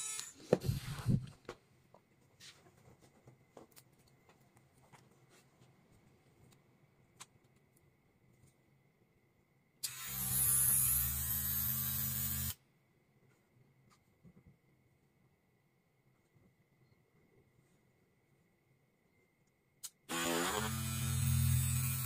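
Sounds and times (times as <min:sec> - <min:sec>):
small electric motor running: 0:20.1 - 0:22.0.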